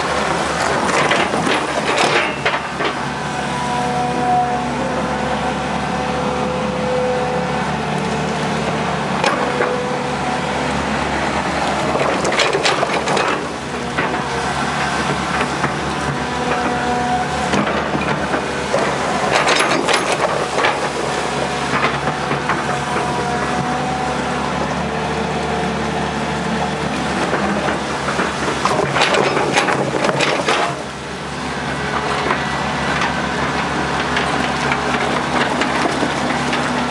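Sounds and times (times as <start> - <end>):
excavator engine and hydraulics: 0.0 - 36.9
clanks and knocks: 0.5 - 3.1, 9.2 - 9.9, 11.8 - 23.8, 27.2 - 30.9, 32.0 - 36.9.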